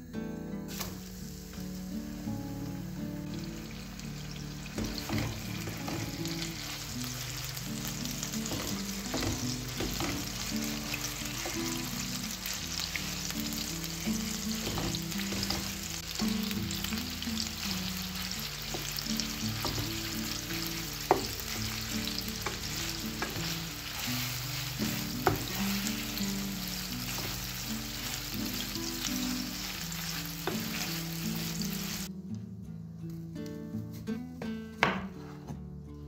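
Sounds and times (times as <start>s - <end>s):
meat sizzling in a frying pan: 0.7s - 32.1s
spoon tapping on pan: 8.5s - 10.4s, 21.1s - 21.4s
wooden spoon scraping a pan: 21.1s - 28.6s.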